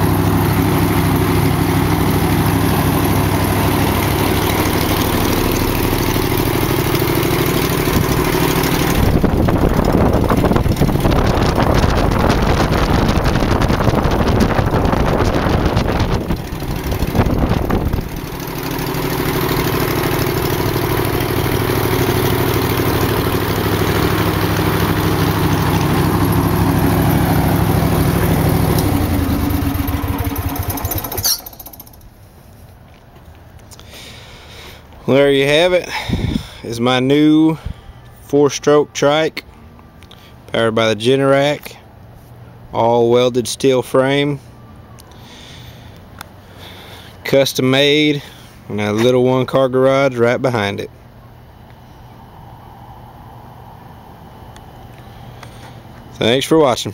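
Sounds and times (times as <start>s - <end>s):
propeller wind rush: 0.0s - 32.2s, 35.2s - 36.9s
engine idling: 0.0s - 32.6s.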